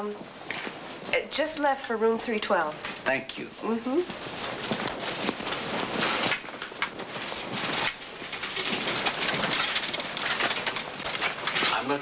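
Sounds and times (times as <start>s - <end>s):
clattering rustling din: 4.1s - 12.0s.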